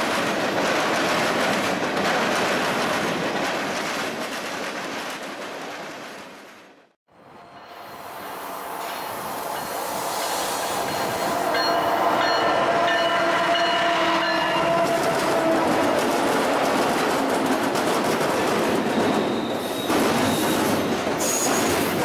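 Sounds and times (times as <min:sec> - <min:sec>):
train wheels rattling on rails: 0:07.8 - 0:22.0.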